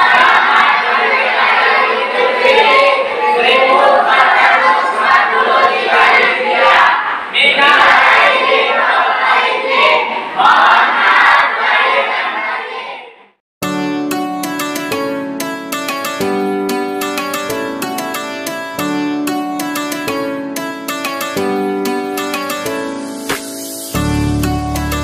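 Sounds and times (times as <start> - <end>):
children chanting in unison: 0.0 - 13.3.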